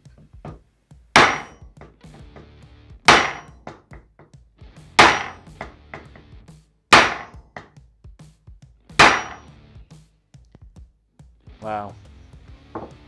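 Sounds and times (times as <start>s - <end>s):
sledgehammer striking wood: 1.2s - 2.4s, 3.0s - 4.1s, 4.9s - 6.3s, 6.9s - 7.8s, 8.9s - 9.5s.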